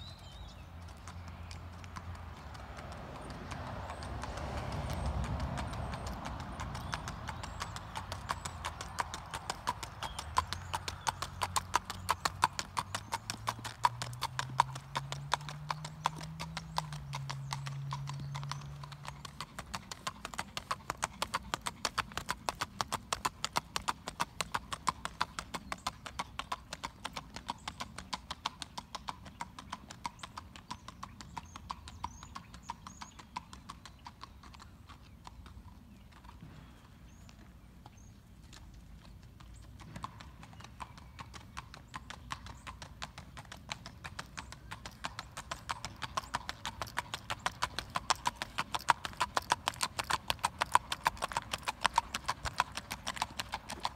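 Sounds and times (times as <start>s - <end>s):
horse hoofbeats on hard ground: 0.2s - 29.4s, 36.2s - 53.9s.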